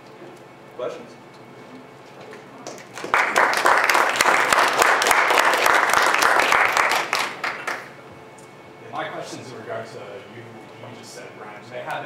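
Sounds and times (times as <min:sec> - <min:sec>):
audience applauding: 0:02.6 - 0:07.9.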